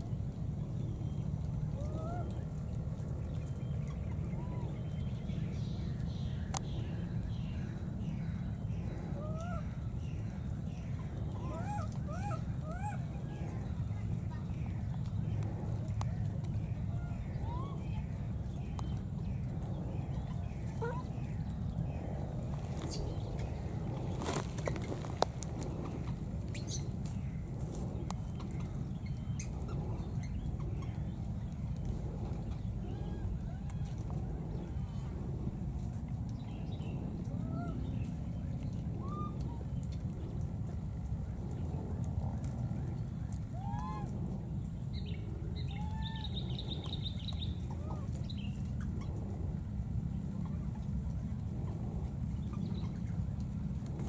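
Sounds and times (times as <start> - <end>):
low rumble: 0.0 - 54.0.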